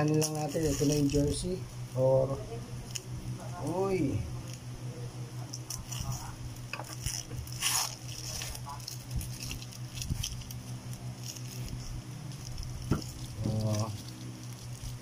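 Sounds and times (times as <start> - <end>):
packaging rustling: 0.0 - 1.5, 5.5 - 15.0
steady low hum: 0.0 - 15.0.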